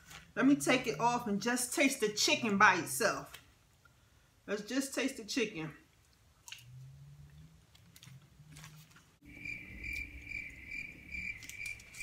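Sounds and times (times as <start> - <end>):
faint chewing: 5.9 - 9.2.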